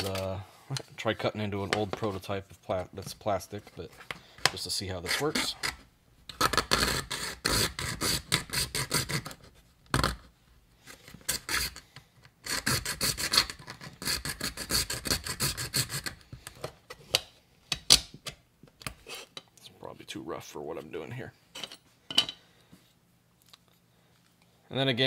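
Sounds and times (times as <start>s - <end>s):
saw blade cutting plastic: 5.0s - 9.4s, 11.2s - 11.8s, 12.4s - 16.2s.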